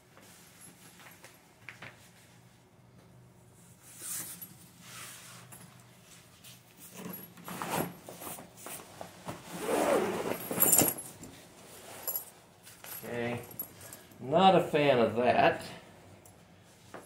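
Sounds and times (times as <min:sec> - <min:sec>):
fabric rubbing: 0:09.5 - 0:10.6
zipper pulled open: 0:09.5 - 0:11.0.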